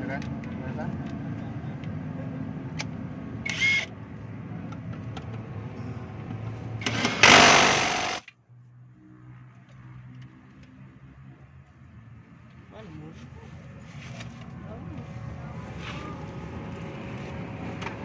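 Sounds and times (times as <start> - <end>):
impact wrench running: 6.8 - 8.3.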